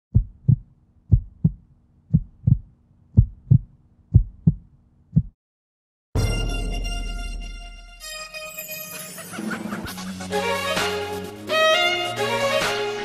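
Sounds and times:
heartbeat thumps: 0.1 - 5.4.

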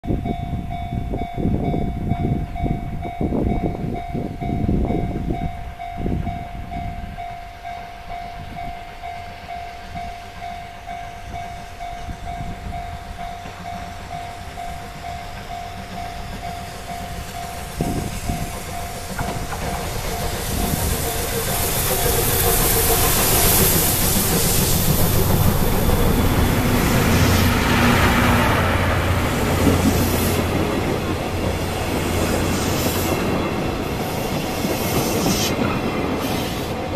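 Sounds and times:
steam locomotive passing: 0.1 - 36.9
train wheels clacking over rail joints: 12.7 - 36.9.

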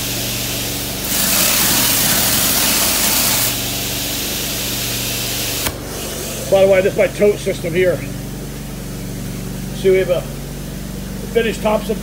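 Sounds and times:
high-pressure water spray hiss: 0.0 - 6.3
pressure washer engine hum: 0.0 - 12.0.

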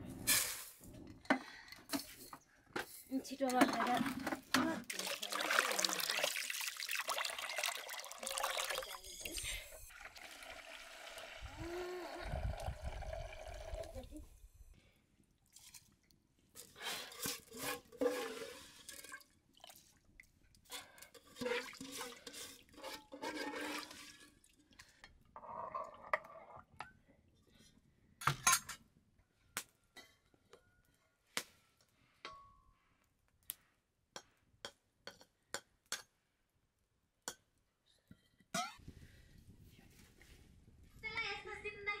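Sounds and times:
water pouring and splashing: 3.7 - 14.3, 15.4 - 25.0.

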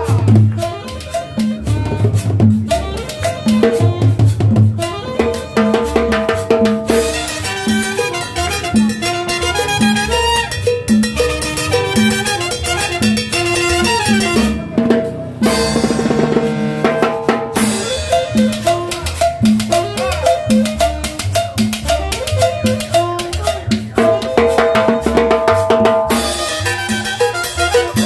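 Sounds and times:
live dance band playing: 0.0 - 28.0
metal guiro scraping: 0.0 - 28.0.

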